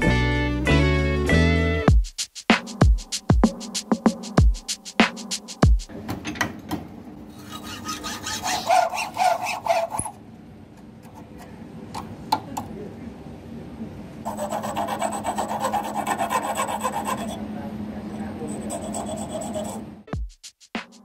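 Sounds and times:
hand file rasping: 0:07.4 - 0:10.1, 0:14.3 - 0:17.4, 0:18.5 - 0:19.8
hacksaw cutting: 0:07.4 - 0:10.2, 0:14.3 - 0:17.4, 0:18.7 - 0:19.8.

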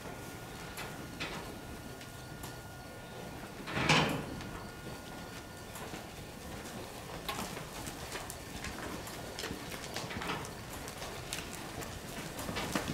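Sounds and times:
hooves stepping on straw: 0:04.6 - 0:12.9.

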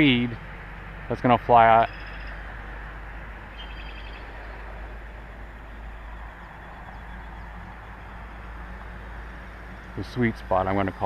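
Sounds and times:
faint bird chirps: 0:01.7 - 0:02.5, 0:03.5 - 0:04.8, 0:05.6 - 0:09.1
wind rumble on microphone: 0:02.2 - 0:11.0.

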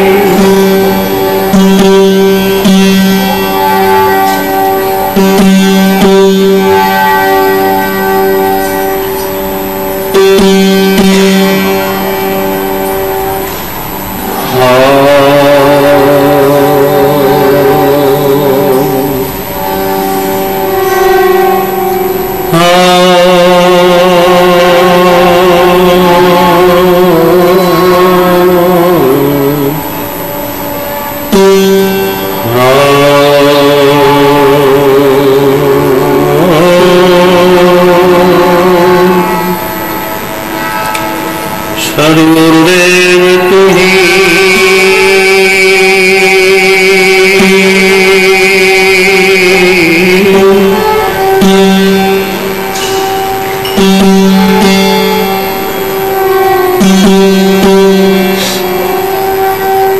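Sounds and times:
plucked string instrument drone: 0:00.0 - 0:59.9
man singing a chant: 0:14.4 - 0:19.6, 0:22.5 - 0:30.1, 0:32.4 - 0:39.8, 0:41.8 - 0:52.4.

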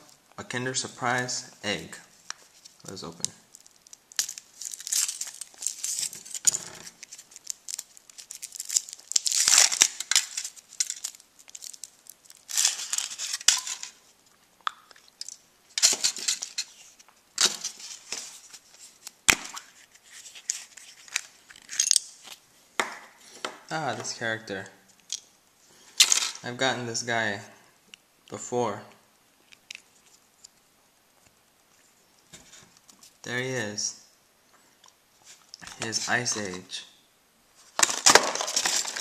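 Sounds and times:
foil wrapper crinkling and tearing: 0:02.3 - 0:14.0, 0:37.7 - 0:39.0.

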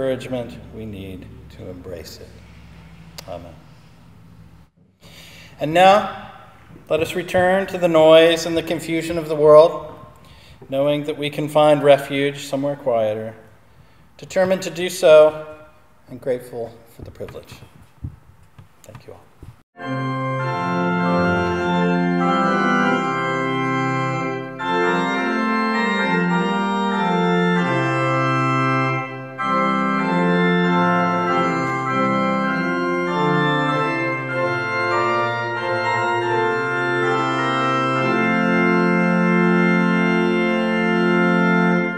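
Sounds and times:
organ chords: 0:00.0 - 0:16.8, 0:19.8 - 0:41.9.

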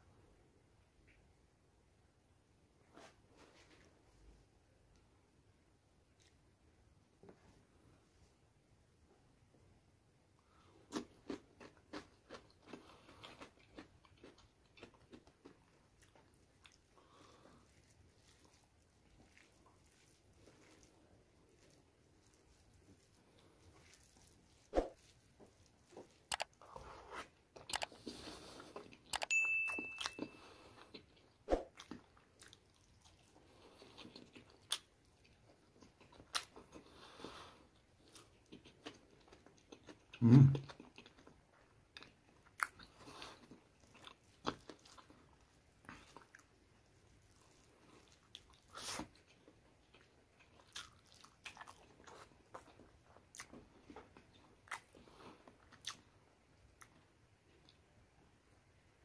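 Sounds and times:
wet chewing: 0:10.8 - 0:29.3, 0:30.0 - 0:57.0.

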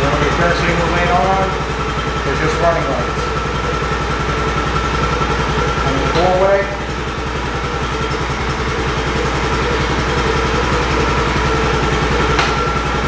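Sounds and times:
engine idling: 0:00.0 - 0:13.0
sharp click: 0:12.4 - 0:12.6.

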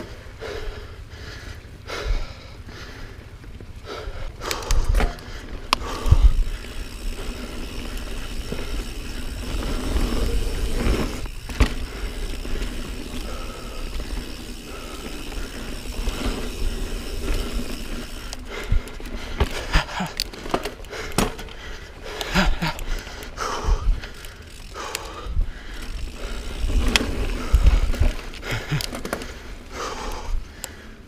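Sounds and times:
bike tyres rolling on dirt: 0:00.0 - 0:31.0
bike knocks and rattles: 0:03.5 - 0:23.0, 0:25.8 - 0:29.5.

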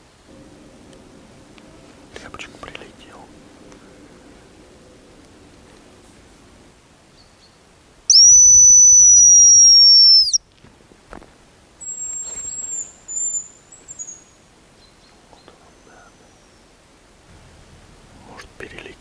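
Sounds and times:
high-pitched decoy whistle: 0:08.1 - 0:10.4.

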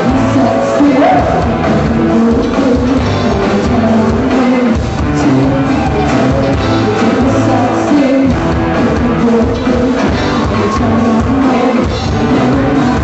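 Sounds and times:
live rock band with vocals: 0:00.0 - 0:13.0.

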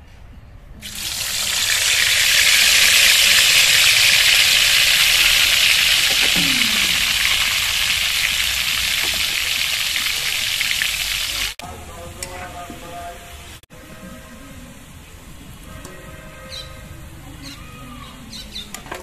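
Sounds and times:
potatoes sizzling in hot oil: 0:00.8 - 0:11.6.

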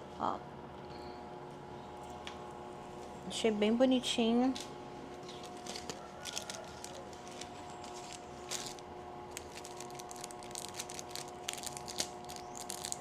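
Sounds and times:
faint steady hum: 0:00.0 - 0:13.0
paper bag and packaging rustling: 0:05.2 - 0:13.0.

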